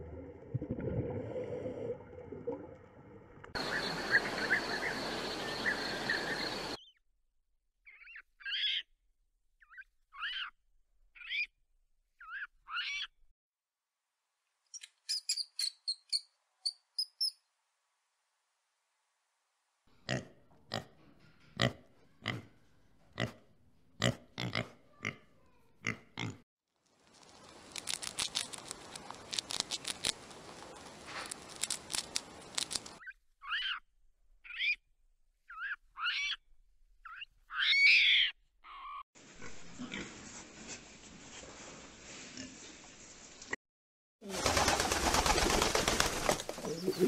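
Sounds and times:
rodent squeaking: 0:09.6 - 0:10.5, 0:33.0 - 0:33.8.

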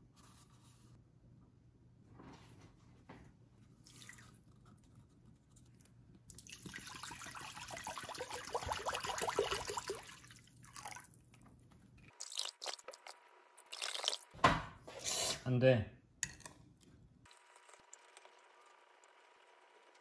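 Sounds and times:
water pouring into glass bowl: 0:03.8 - 0:04.4, 0:06.3 - 0:11.2, 0:12.2 - 0:14.3.

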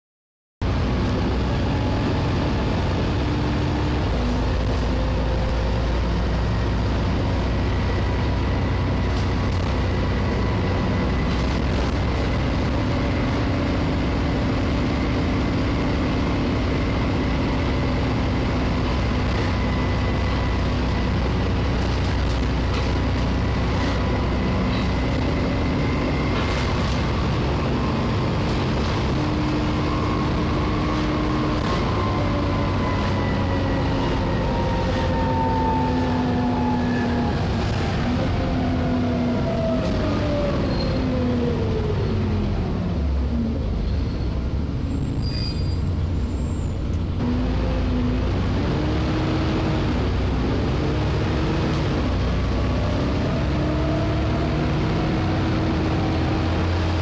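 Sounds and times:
bus engine droning: 0:00.6 - 0:57.0.

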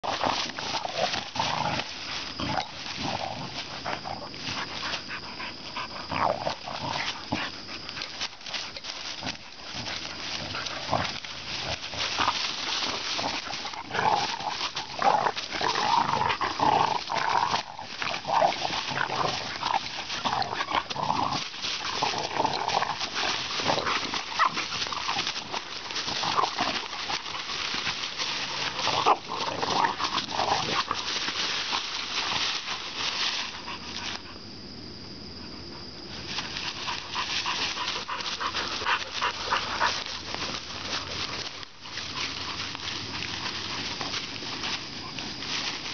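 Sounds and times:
dogs growling and snarling: 0:00.0 - 0:34.2, 0:36.4 - 0:45.9
paws scuffling in dry leaves: 0:00.0 - 0:34.2, 0:36.1 - 0:45.9.

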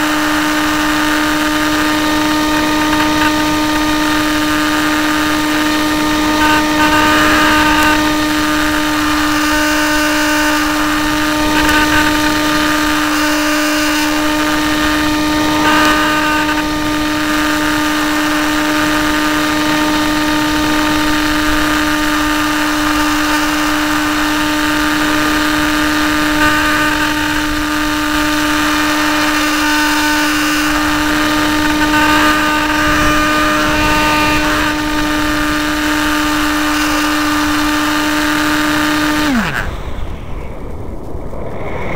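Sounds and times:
electric motor and propeller drone: 0:00.0 - 0:41.9
wind rushing: 0:30.6 - 0:36.5, 0:39.7 - 0:41.9.

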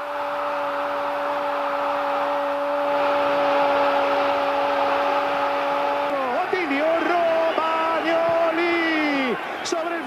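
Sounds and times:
stadium crowd noise: 0:00.0 - 0:10.0
commentator shouting goal: 0:06.0 - 0:10.0.

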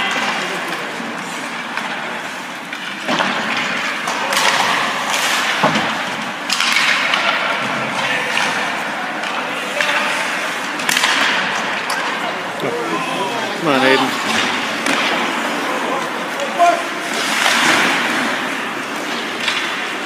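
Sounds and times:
murmur of spectators: 0:00.0 - 0:20.0
skates scraping ice: 0:00.0 - 0:20.0
sticks and puck clacking: 0:00.0 - 0:20.0.

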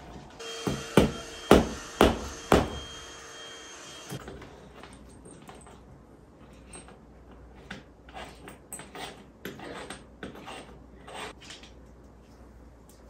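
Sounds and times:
screw scraping into drywall: 0:06.5 - 0:11.7.

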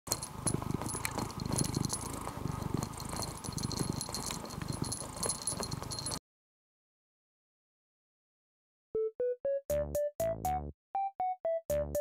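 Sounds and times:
cat purring: 0:00.1 - 0:06.2.

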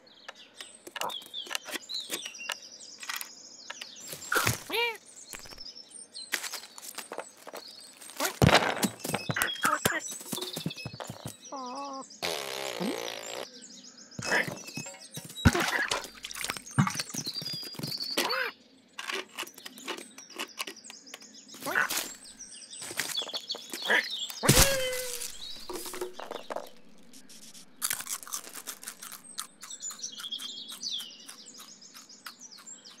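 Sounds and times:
birds chirping: 0:00.0 - 0:33.0
clicks scrapes and rustles: 0:00.6 - 0:05.6, 0:06.3 - 0:11.4, 0:19.0 - 0:22.2, 0:22.8 - 0:30.0.

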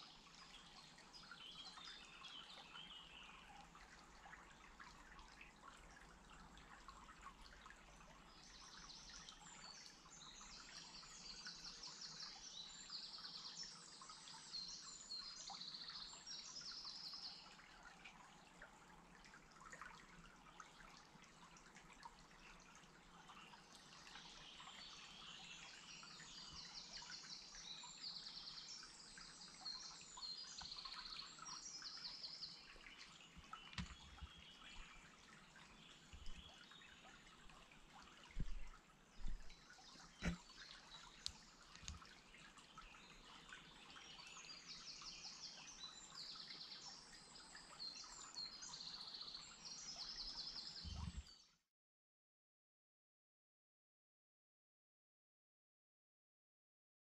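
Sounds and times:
songbirds singing: 0:00.0 - 0:06.0, 0:23.2 - 0:51.5
dull low thumps: 0:38.4 - 0:39.5.

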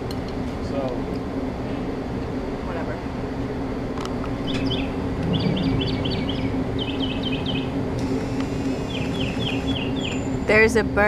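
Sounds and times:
steady low hum: 0:00.0 - 0:11.0
songbird chirping: 0:04.4 - 0:07.8, 0:08.8 - 0:10.6.

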